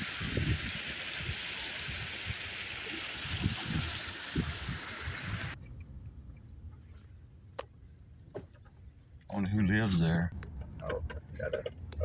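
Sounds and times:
rushing water: 0.0 - 5.6.

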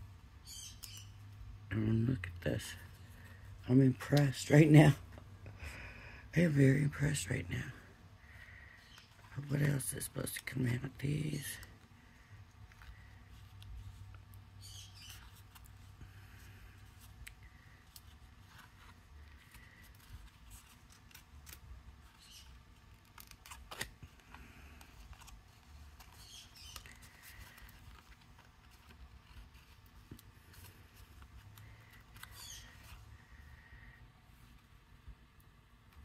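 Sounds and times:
low steady hum: 0.0 - 36.0
cardstock rustling and clicking: 15.0 - 33.0.

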